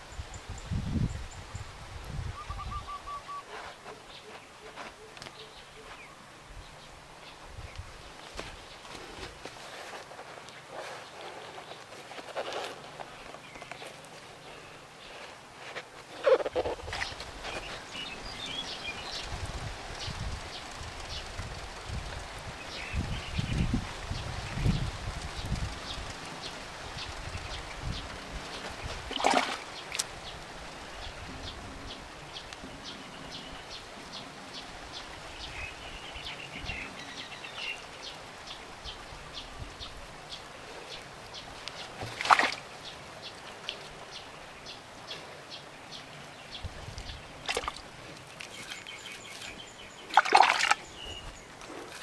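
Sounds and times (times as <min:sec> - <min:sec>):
hands squelching wet clay: 0:28.5 - 0:30.2, 0:41.7 - 0:42.6, 0:46.9 - 0:52.0.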